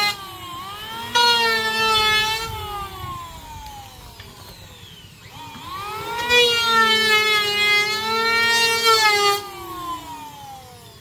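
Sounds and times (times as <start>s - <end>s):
electric planer motor whining: 0.0s - 11.0s.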